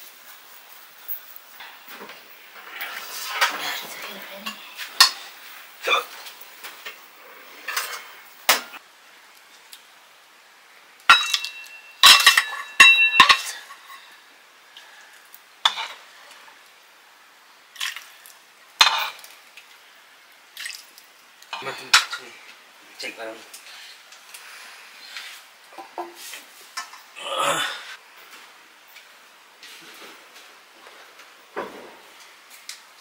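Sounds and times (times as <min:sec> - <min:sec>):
metal dishes and utensils clinking: 0:01.6 - 0:07.0, 0:07.6 - 0:08.8, 0:11.1 - 0:14.2, 0:18.8 - 0:19.3, 0:21.5 - 0:22.3.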